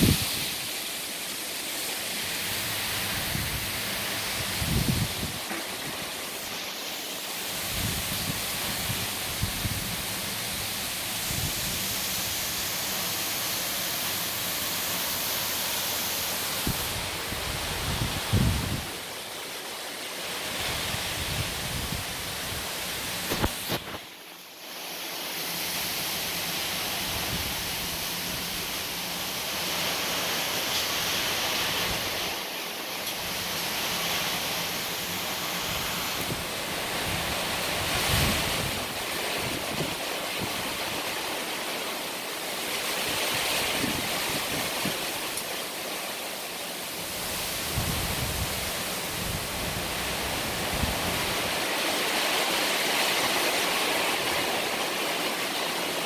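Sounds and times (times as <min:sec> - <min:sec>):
wind rumbling on microphone: 0:00.0 - 0:00.8, 0:02.5 - 0:06.2, 0:07.5 - 0:12.7, 0:16.5 - 0:19.1, 0:20.6 - 0:24.1, 0:35.4 - 0:41.2, 0:42.9 - 0:45.4, 0:47.0 - 0:52.3
heavy rain hissing: 0:00.0 - 0:56.0.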